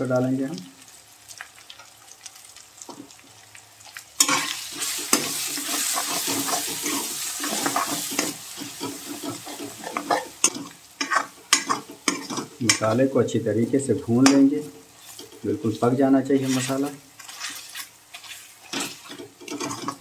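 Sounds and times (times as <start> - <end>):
spices sizzling in oil: 0.0 - 20.0
spatula knocking pan: 4.2 - 12.9
spatula scraping pan: 4.2 - 13.1, 14.2 - 15.5, 16.3 - 20.0.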